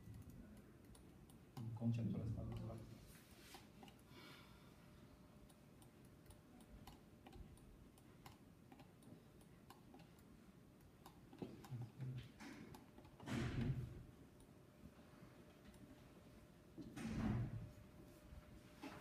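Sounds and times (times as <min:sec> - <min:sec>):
mouse and keyboard clicks: 0:05.5 - 0:10.3.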